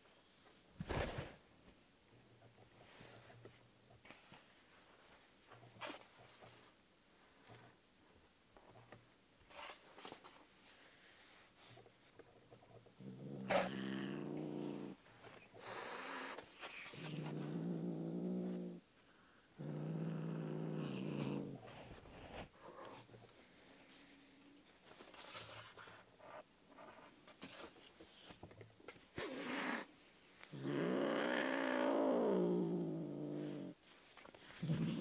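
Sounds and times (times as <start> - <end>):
cat growling: 12.9 - 15.0, 15.6 - 18.8, 19.6 - 21.6, 30.5 - 33.8, 34.6 - 35.0
cat hissing: 15.6 - 17.4, 29.2 - 29.9.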